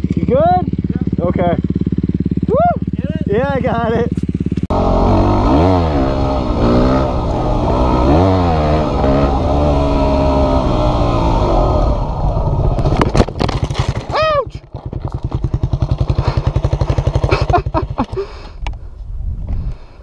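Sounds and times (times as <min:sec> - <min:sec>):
dirt bike engine revving: 0:00.0 - 0:14.1, 0:14.7 - 0:18.4
bike crashing onto gravel: 0:12.7 - 0:17.4.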